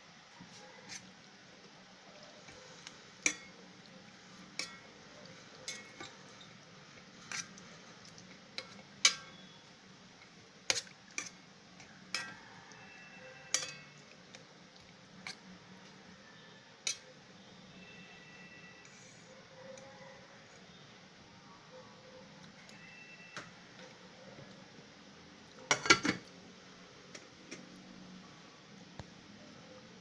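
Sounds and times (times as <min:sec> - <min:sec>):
metal spoon clinking in pot: 0:03.2 - 0:03.6, 0:04.5 - 0:06.6, 0:08.6 - 0:09.5, 0:12.0 - 0:14.1, 0:16.8 - 0:17.1.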